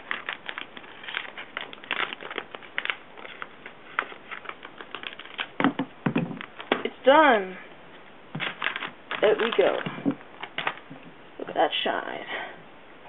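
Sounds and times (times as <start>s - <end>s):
packaging being torn open: 0.0s - 5.6s, 8.4s - 10.9s.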